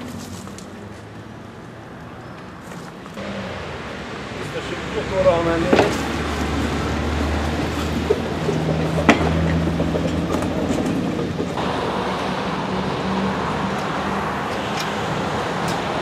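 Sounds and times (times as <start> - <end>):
road traffic: 0.0 - 16.0
trolley wheels rumbling on rails: 4.3 - 16.0.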